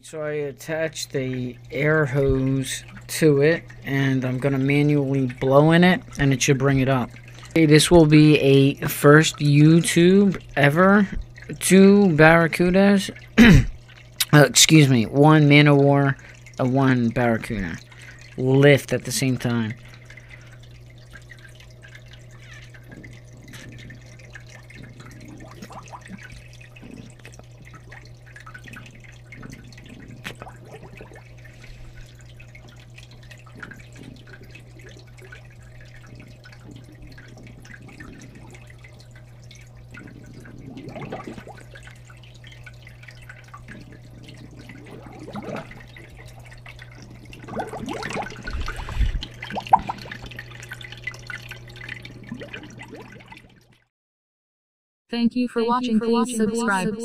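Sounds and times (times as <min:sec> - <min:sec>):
steady low hum: 0:00.0 - 0:53.6, 0:55.2 - 0:57.0
water dripping: 0:00.4 - 0:53.9
air bubbling in water: 0:19.8 - 0:53.7.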